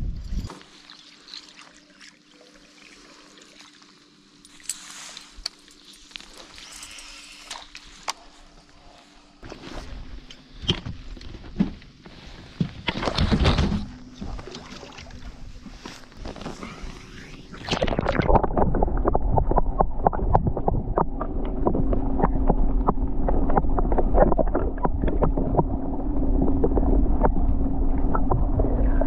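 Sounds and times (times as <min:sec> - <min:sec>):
water and wind hiss: 0:00.0 - 0:09.4
steady low hum: 0:00.0 - 0:29.0
muffled underwater rumble: 0:07.9 - 0:29.0.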